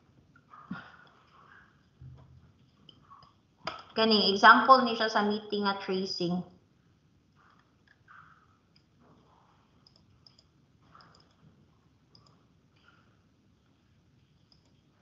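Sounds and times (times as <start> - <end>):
computer mouse clicks: 9.8 - 11.5, 12.1 - 13.1, 14.4 - 14.8.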